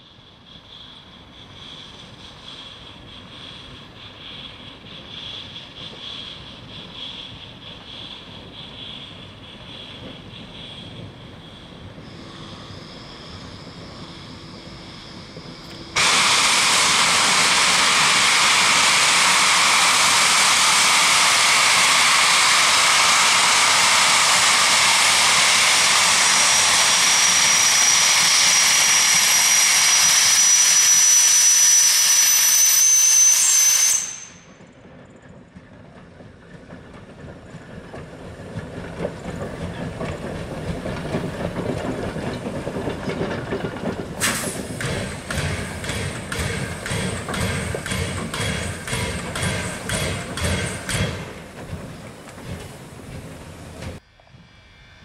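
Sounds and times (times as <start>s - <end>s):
thin high whistling tone: 0.4s - 16.0s, 24.3s - 34.8s
steam hissing from safety valve: 12.0s - 34.6s, 44.2s - 51.2s.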